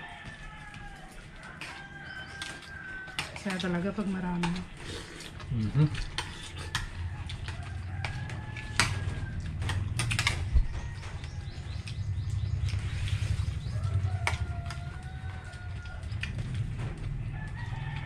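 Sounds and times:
rooster crowing: 0.0 - 3.4, 6.6 - 11.7, 13.7 - 16.1, 17.3 - 18.0.

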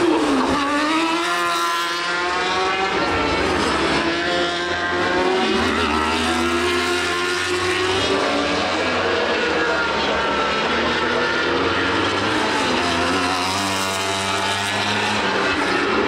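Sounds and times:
motorcycle engines revving: 0.0 - 16.0.

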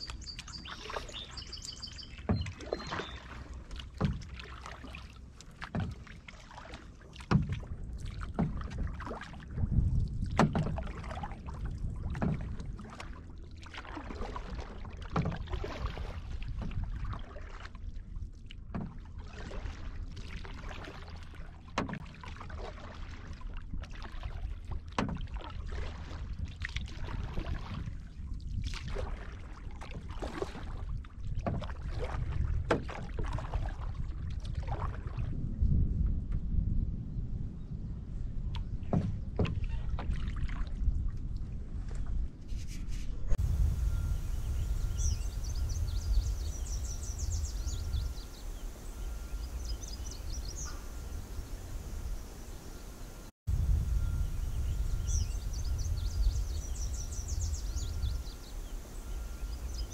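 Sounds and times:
paddle dips and splashes: 0.0 - 35.5, 38.4 - 59.9
water lapping at hull: 0.0 - 59.9
low rumble: 43.2 - 59.9.

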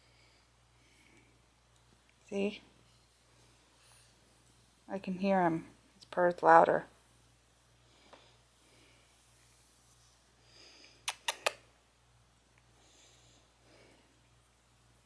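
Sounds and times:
quick sharp clicks: 11.0 - 11.6.

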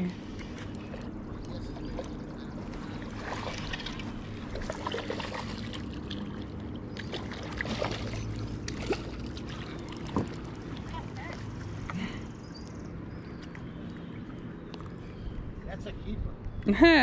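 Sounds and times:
small lapping waves: 0.0 - 16.1
fish splashing into water: 3.0 - 11.3.

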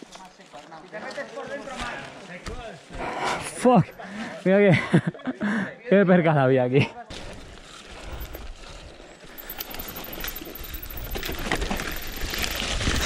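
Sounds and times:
bike tyres on dirt: 0.0 - 3.2, 7.1 - 13.0
bike knocks and rattles: 9.4 - 13.0.

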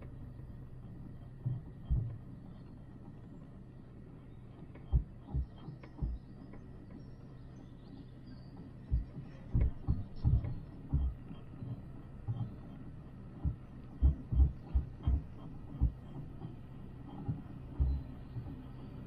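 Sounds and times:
gondola cabin hum: 0.0 - 19.0
low thumps and knocks: 1.4 - 2.3, 4.8 - 6.3, 8.9 - 12.6, 13.4 - 18.7.

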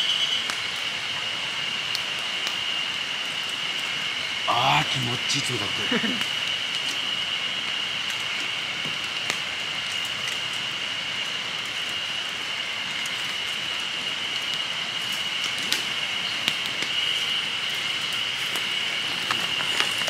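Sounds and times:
steady outdoor hiss: 0.0 - 20.0
high thin whine: 4.4 - 6.3.

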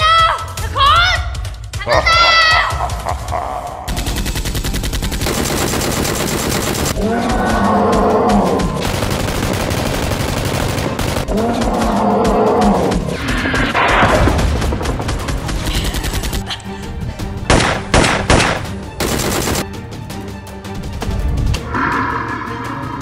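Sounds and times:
background music: 0.0 - 23.0
machine-gun fire: 3.9 - 7.0, 8.6 - 11.4, 17.5 - 19.6
drawn-out growl: 11.3 - 13.3, 21.6 - 23.0.

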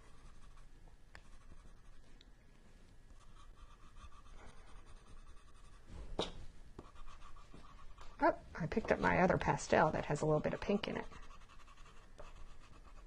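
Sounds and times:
pencil scratching on paper: 0.0 - 2.0, 3.2 - 5.9, 6.8 - 8.2, 9.0 - 13.0.

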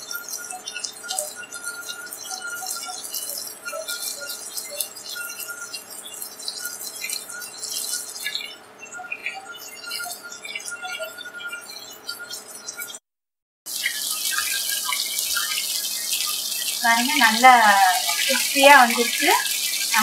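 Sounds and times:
chicken deep-frying in hot oil: 0.0 - 13.0, 13.7 - 20.0.

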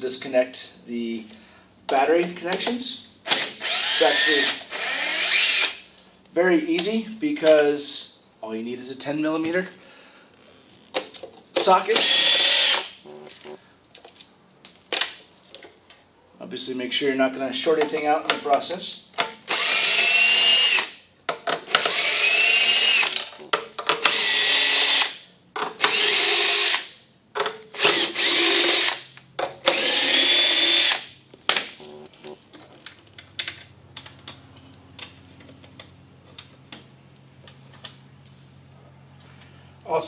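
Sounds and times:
cordless drill whining: 3.2 - 5.8, 12.0 - 13.2, 19.5 - 21.0, 21.6 - 23.3, 24.0 - 25.2, 25.8 - 26.9, 27.8 - 31.1.

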